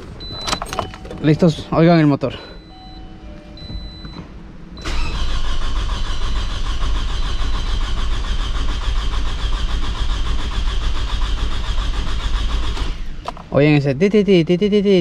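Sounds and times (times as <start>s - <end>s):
car engine cranking without firing: 4.8s - 15.0s.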